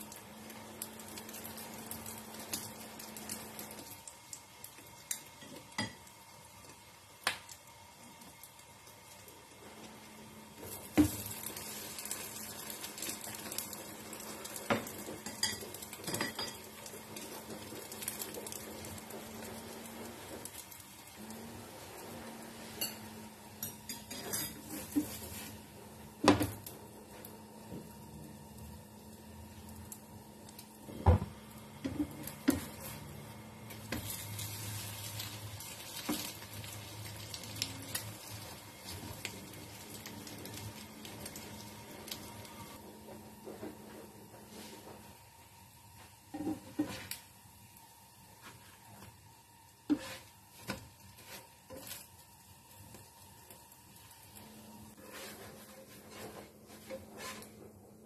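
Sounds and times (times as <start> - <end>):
food sizzling in frying pan: 0.0 - 57.6
utensils clinking on cookware: 14.7 - 16.9, 22.7 - 25.3.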